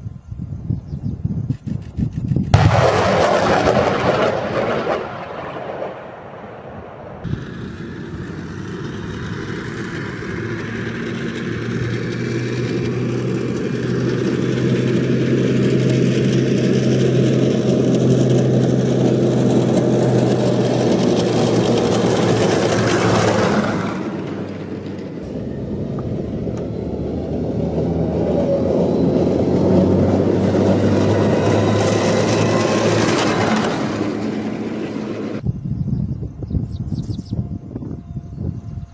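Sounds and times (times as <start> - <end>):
tracked vehicle driving on gravel: 7.3 - 35.4.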